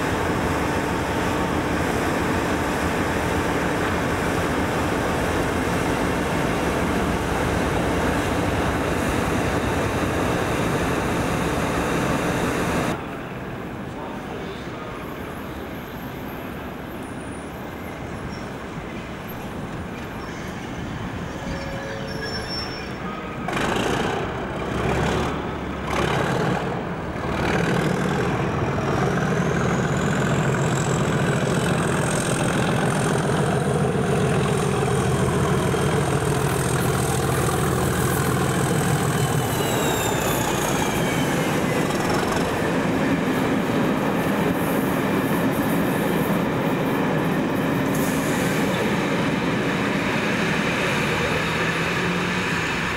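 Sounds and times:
diesel locomotive engine drone: 0.0s - 52.9s
train wheels on rails: 0.0s - 52.9s
loud rushes of noise: 22.8s - 52.9s
high whistle: 39.1s - 41.8s.

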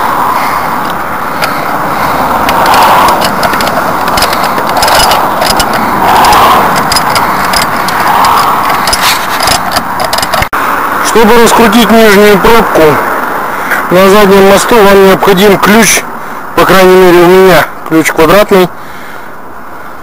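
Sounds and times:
screw jack creaking and scraping: 1.4s - 10.5s
crank handle clicks: 2.4s - 10.5s.

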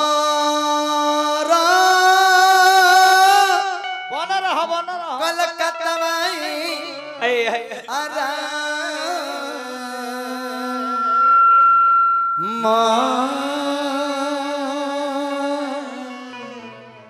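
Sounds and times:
man singing folk song: 0.0s - 11.0s.

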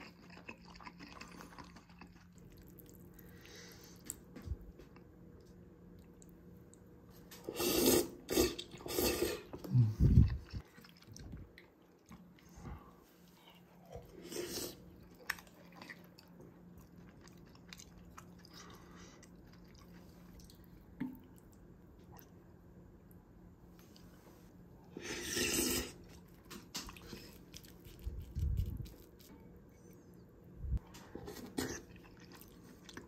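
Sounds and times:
chewing and mouth clicks: 0.0s - 6.9s, 10.0s - 12.5s, 15.0s - 22.4s, 26.0s - 29.3s, 31.3s - 33.0s
person slurping noodles: 7.4s - 10.6s, 14.2s - 14.8s, 24.9s - 26.1s.

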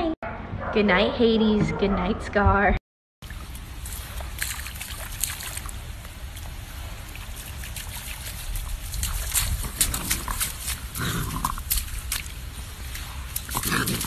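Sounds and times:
raccoon splashing water: 3.2s - 14.0s.

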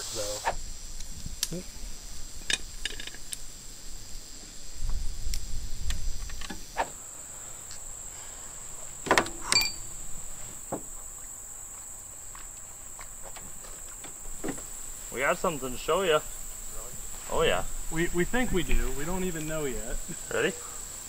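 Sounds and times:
insects buzzing: 0.0s - 21.0s.

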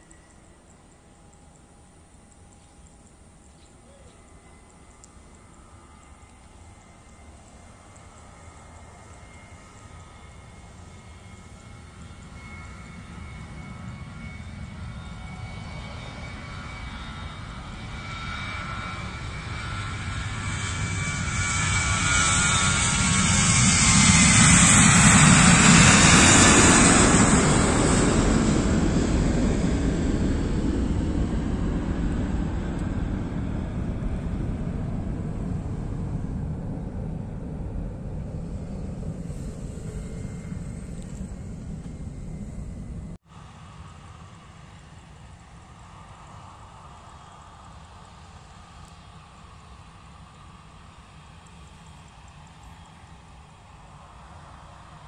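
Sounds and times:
jet engines at takeoff: 0.0s - 55.0s.

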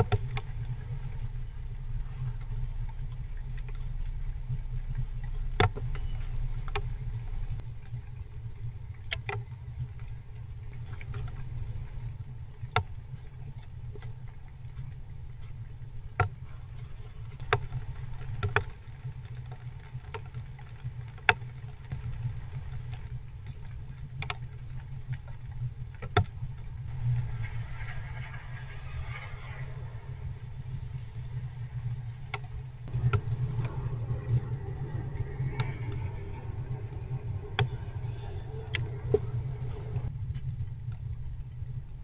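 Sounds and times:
steady low hum: 0.0s - 42.0s
raindrops tapping wooden box: 2.9s - 7.0s, 12.6s - 26.9s.

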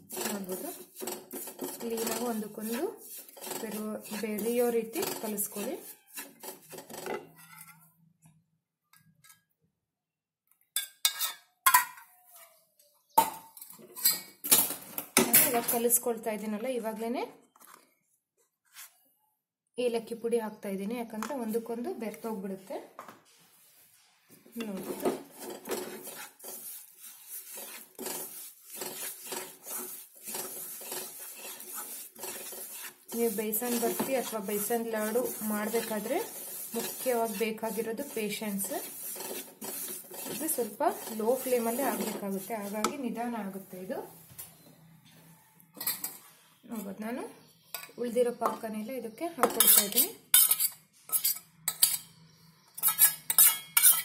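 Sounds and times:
wooden spatula scraping a pan: 0.0s - 7.9s, 23.3s - 44.2s, 49.4s - 52.0s, 52.8s - 54.0s.

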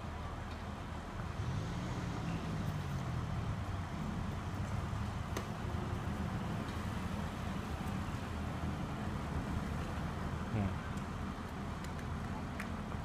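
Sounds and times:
diesel engine revving: 1.1s - 10.5s.

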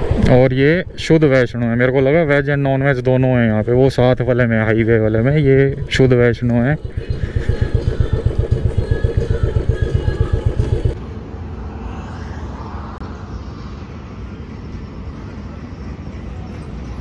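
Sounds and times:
motorcycle engine running: 0.0s - 11.0s
roadside traffic noise: 11.0s - 17.0s.

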